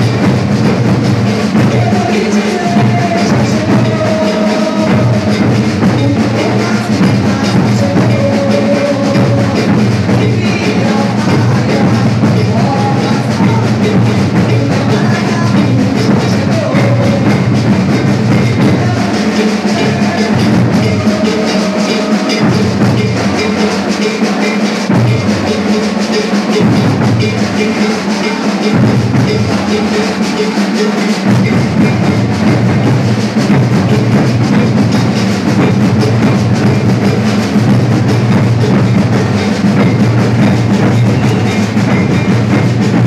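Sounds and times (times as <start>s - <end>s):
snare drums: 0.0s - 43.0s
deep bass drums: 31.3s - 43.0s.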